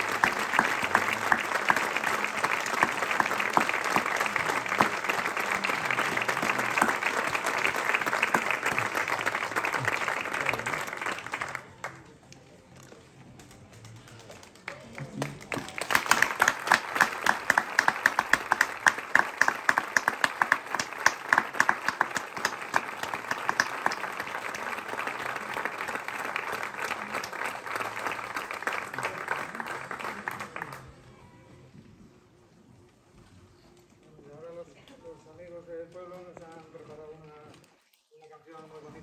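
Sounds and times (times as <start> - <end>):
crowd clapping: 0.0 - 12.3, 13.8 - 31.0.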